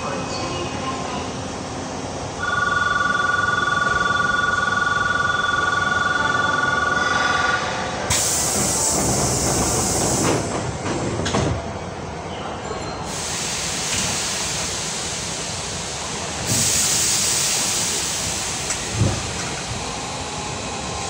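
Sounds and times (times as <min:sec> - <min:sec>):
train compressed air hiss: 0:08.1 - 0:10.5, 0:13.1 - 0:19.7.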